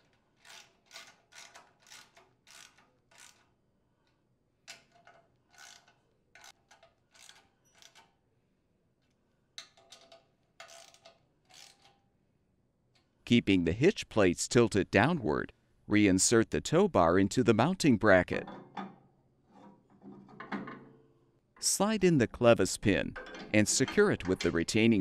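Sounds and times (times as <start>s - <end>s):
ratchet wrench clicking: 0.4s - 3.6s, 4.7s - 8.1s, 10.6s - 12.0s.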